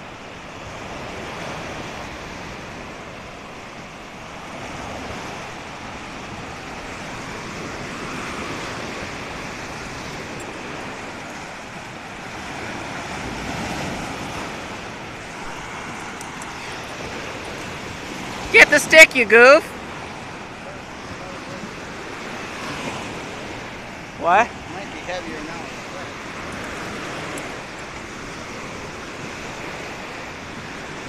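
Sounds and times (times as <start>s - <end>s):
waves breaking on beach: 0.0s - 31.0s.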